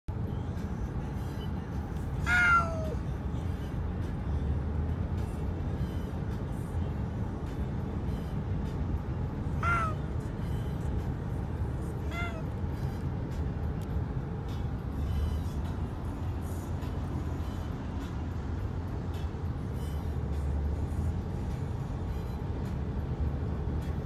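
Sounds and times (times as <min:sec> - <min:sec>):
road noise inside a car: 0:00.1 - 0:24.0
cat meowing: 0:02.2 - 0:03.0, 0:09.6 - 0:10.0, 0:12.0 - 0:12.5.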